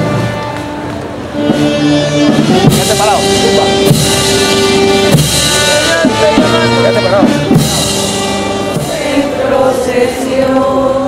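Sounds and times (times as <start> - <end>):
procession band music: 0.0 - 11.0.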